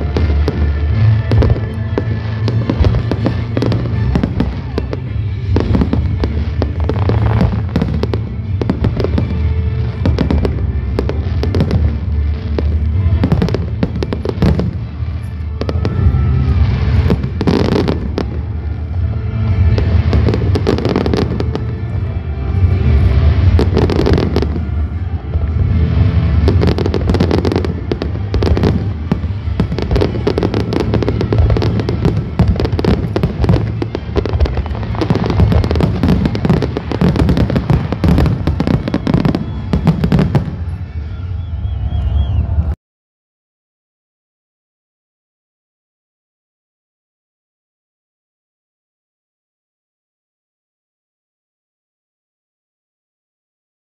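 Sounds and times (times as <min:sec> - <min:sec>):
fireworks bangs and crackles: 0:00.0 - 0:42.7
music playing: 0:00.0 - 0:42.8.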